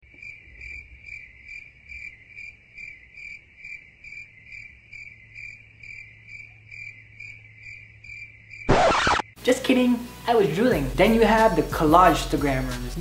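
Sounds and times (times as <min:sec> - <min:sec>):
crickets chirping: 0:00.1 - 0:09.4.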